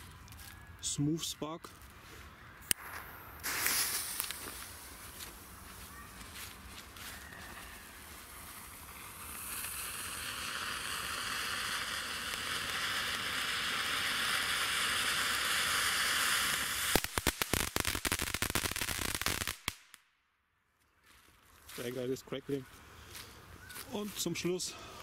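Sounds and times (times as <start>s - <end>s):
firework crackling: 2.7s - 20.1s
firework fountain hissing: 2.8s - 5.8s, 7.4s - 19.8s.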